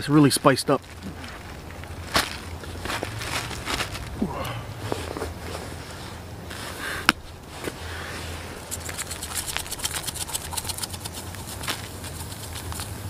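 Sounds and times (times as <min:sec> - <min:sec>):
spice shaker rattling: 0:08.6 - 0:13.0.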